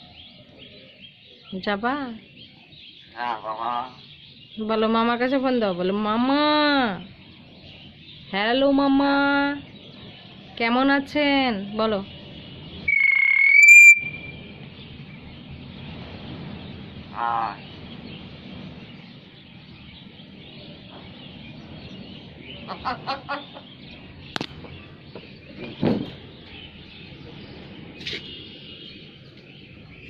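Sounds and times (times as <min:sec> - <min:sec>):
harsh bird calls: 0:00.0 - 0:30.0
myna bird whistling: 0:12.8 - 0:14.5.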